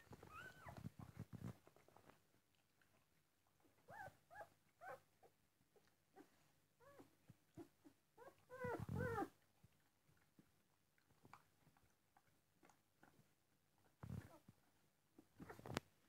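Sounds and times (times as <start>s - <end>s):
puppies squeaking and whimpering: 0.0s - 0.8s, 7.6s - 9.3s.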